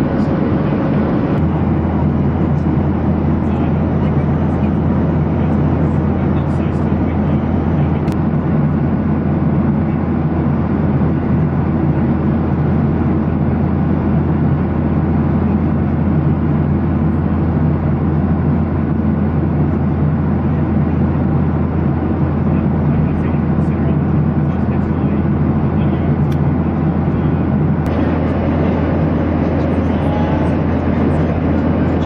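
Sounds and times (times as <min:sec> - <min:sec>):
airflow over fuselage: 0:00.0 - 0:32.0
airplane cabin engine roar: 0:00.0 - 0:32.0.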